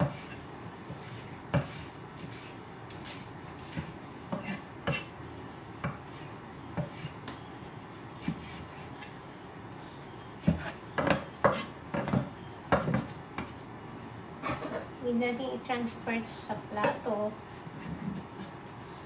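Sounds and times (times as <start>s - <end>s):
knife chopping on wooden board: 0.0s - 5.1s, 10.4s - 13.5s.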